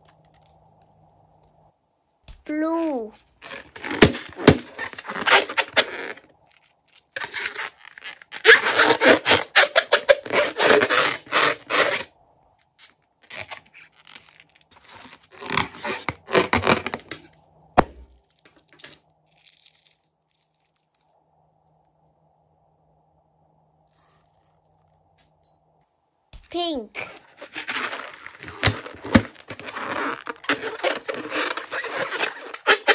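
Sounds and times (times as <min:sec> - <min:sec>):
plastic sequins crackling: 0:18.1 - 0:21.2
hands rubbing a rubber balloon: 0:27.0 - 0:32.9.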